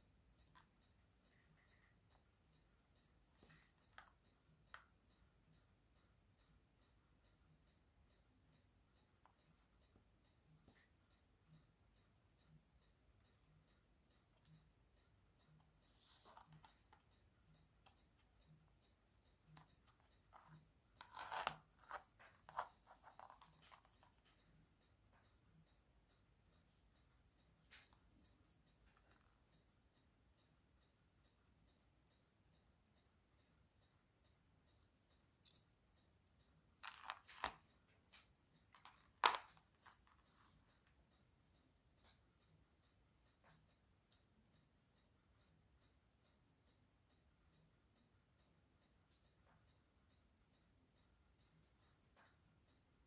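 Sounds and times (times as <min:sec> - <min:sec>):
faint even ticking: 0:00.0 - 0:53.0
small hand tools clicking and scraping: 0:19.6 - 0:24.2, 0:36.8 - 0:37.7.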